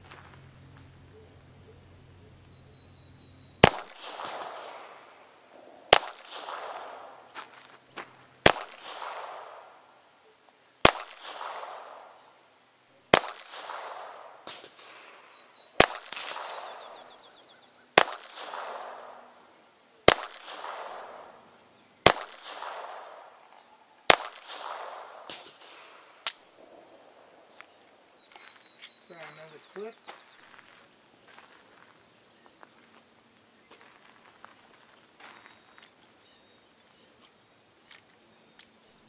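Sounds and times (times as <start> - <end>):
pistol shots: 2.2 - 7.7, 8.4 - 10.0, 10.8 - 12.2, 13.1 - 27.2.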